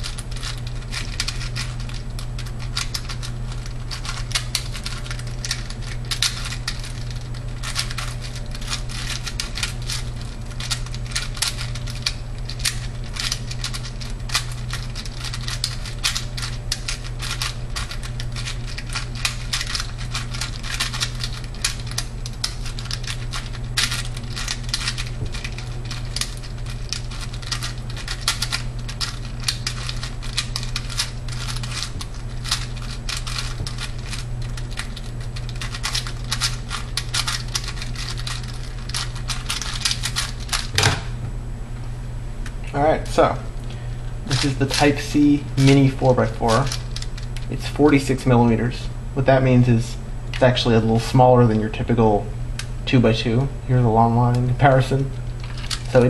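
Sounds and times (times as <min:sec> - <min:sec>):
steady low hum: 0:00.0 - 0:56.0
puzzle cube clicking: 0:35.5 - 0:40.7.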